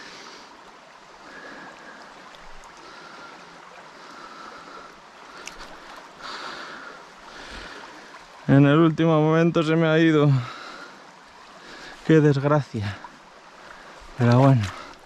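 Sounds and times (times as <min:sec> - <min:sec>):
river flowing over gravel: 0:00.0 - 0:15.0.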